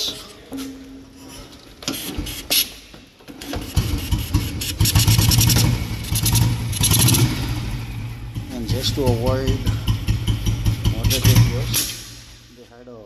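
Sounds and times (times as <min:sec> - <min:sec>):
motorcycle engine running and revving: 0:03.6 - 0:12.4.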